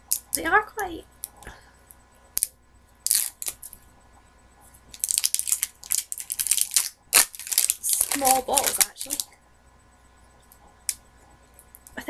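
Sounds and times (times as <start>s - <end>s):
plastic shrink-wrap crinkling: 3.1s - 3.8s, 4.9s - 9.3s.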